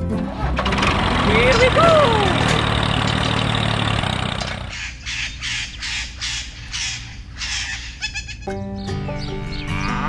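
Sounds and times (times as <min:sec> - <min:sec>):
crows cawing: 0:04.7 - 0:08.4.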